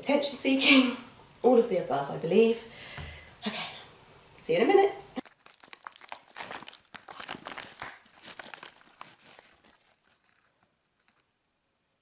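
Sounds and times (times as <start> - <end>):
plastic pouch crinkling: 5.2 - 11.4.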